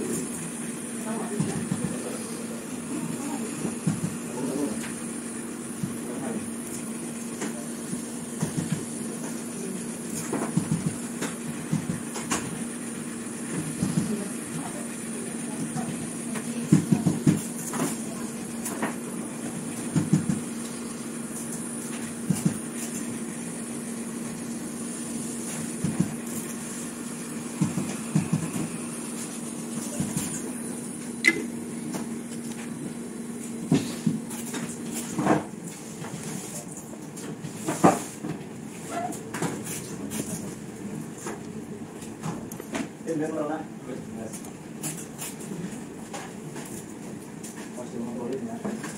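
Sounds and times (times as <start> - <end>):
steady low hum: 0.0 - 38.7.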